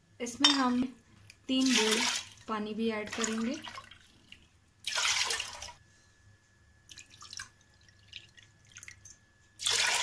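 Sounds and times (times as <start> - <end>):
water pouring into a bowl: 6.9 - 10.0.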